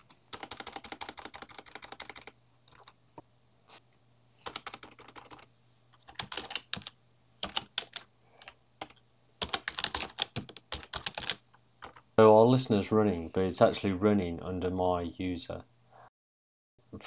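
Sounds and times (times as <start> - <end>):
computer keyboard typing: 0.0 - 3.0, 4.4 - 12.0.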